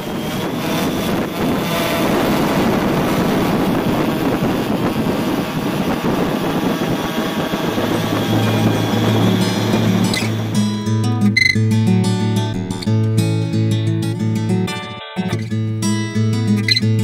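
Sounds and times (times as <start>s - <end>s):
wind buffeting microphone: 0.0s - 11.0s
drone motors and propellers: 0.0s - 11.5s.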